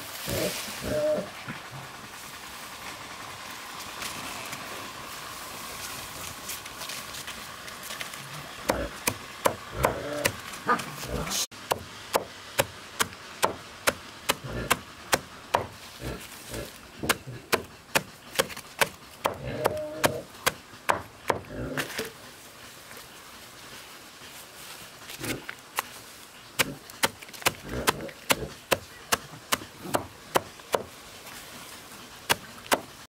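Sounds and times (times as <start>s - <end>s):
machete chopping leafy greens: 8.6s - 15.8s, 17.0s - 22.1s, 26.6s - 31.0s, 32.3s - 33.0s.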